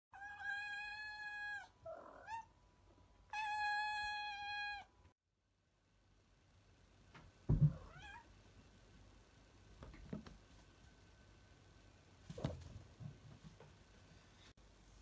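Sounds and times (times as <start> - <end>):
cat meowing: 0.2 - 2.5, 3.3 - 4.9, 7.8 - 8.3.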